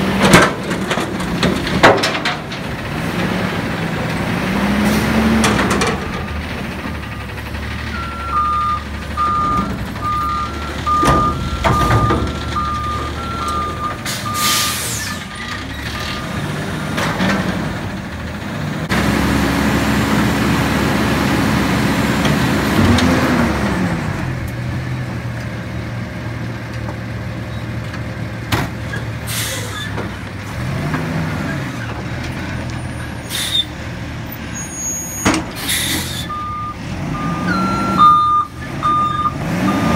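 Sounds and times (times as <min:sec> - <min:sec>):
diesel engine revving: 0:00.0 - 0:26.4, 0:27.0 - 0:39.9
metal clanks: 0:00.2 - 0:02.8
truck backup alarm beeping: 0:07.0 - 0:17.1, 0:35.9 - 0:39.9
air-brake hisses: 0:29.3 - 0:30.0, 0:33.3 - 0:33.7, 0:35.6 - 0:36.3.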